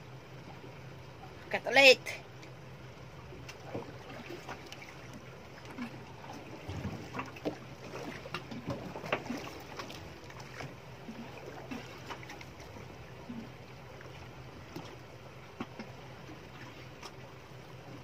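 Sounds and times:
steady low hum: 0.0 - 18.0
water lapping against boat hull: 0.0 - 18.0
small knocks and splashes: 3.4 - 17.3.

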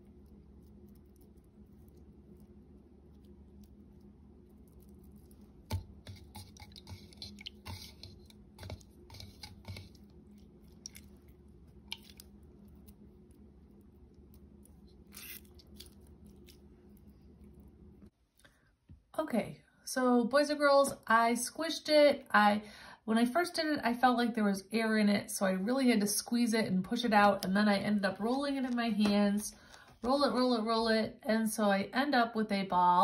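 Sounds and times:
wet squishing of slime ball: 0.0 - 18.4
faint low hum: 0.0 - 33.0.

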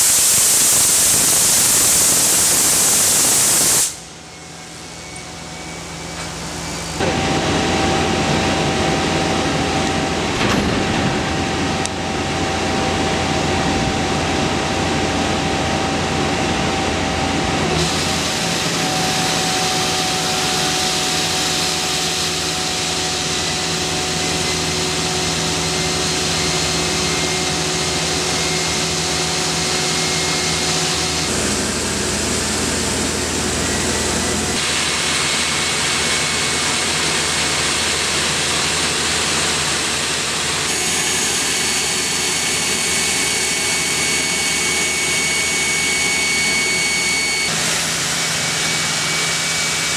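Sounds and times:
high-pressure water jets hissing: 0.0 - 4.1, 34.6 - 49.9
machine hum with tones: 0.0 - 49.9.

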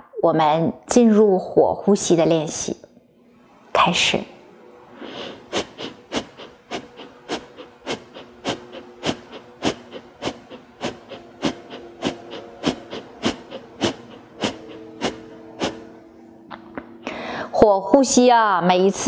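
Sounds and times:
woman breathing forcefully through nose: 5.0 - 16.0, 17.1 - 17.5.

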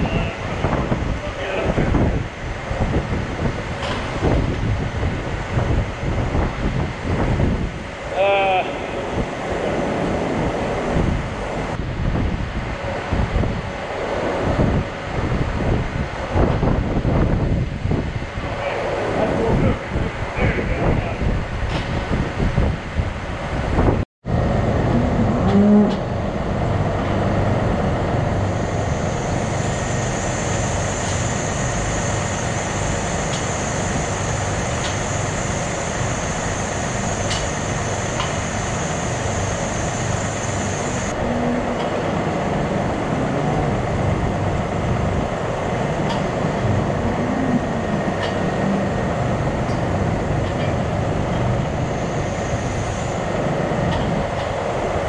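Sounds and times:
ventilation fans droning: 0.0 - 55.0.

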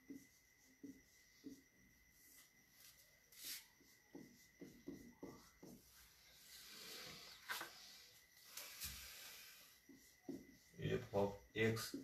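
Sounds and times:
marker scratching on whiteboard: 0.0 - 12.0.

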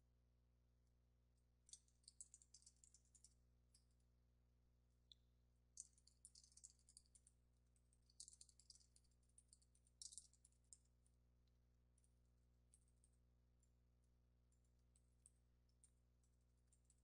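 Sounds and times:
faint keyboard typing: 1.7 - 3.4, 5.8 - 10.8.

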